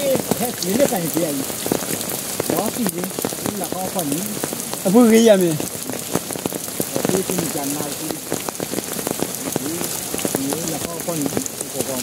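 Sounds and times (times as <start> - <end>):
people talking: 0.0 - 1.5, 2.5 - 5.7, 6.9 - 8.2, 9.4 - 12.0
rain falling: 0.0 - 12.0.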